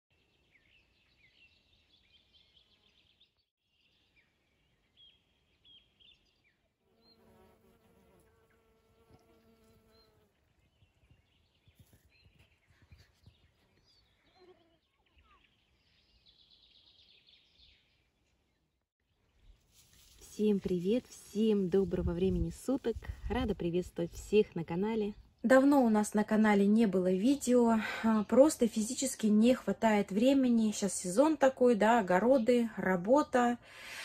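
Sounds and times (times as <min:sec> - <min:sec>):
small birds chirping: 0:00.1 - 0:07.5, 0:08.2 - 0:19.6
bee buzzing: 0:06.9 - 0:10.4.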